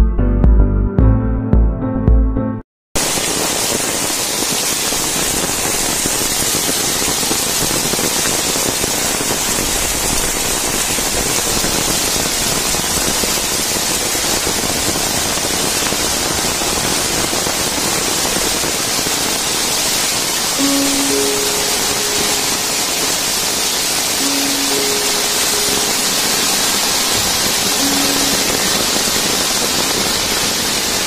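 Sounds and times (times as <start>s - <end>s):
water cascading down stone steps: 3.0s - 31.0s.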